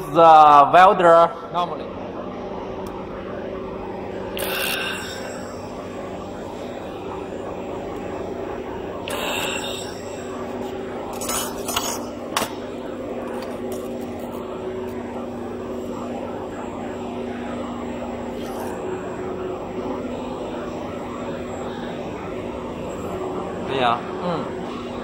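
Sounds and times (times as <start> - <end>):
laser welding machine humming: 0.0 - 25.0.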